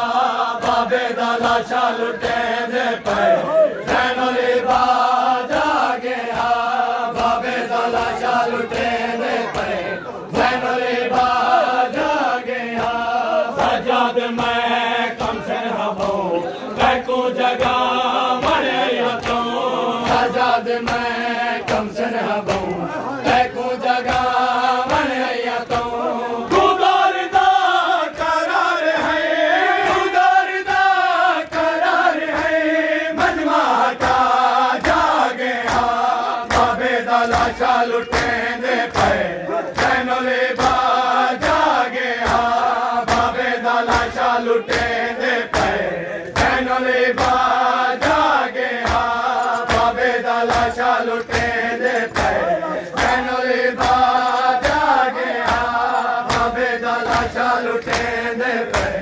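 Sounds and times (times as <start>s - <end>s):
men chanting in unison: 0.0s - 59.0s
hands slapping chests: 17.6s - 26.7s, 33.2s - 59.0s.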